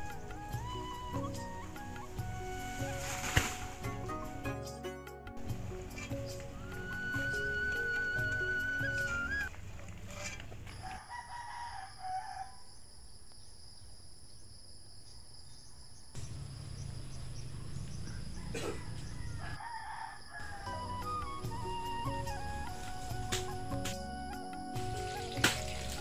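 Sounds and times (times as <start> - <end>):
rooster crowing: 10.8 - 12.8, 18.0 - 20.9.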